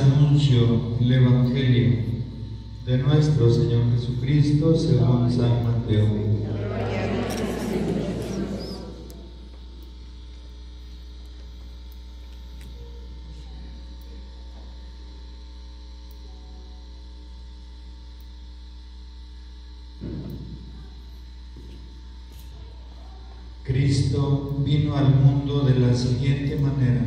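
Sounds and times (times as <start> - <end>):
electrical mains hum: 0.0 - 27.0.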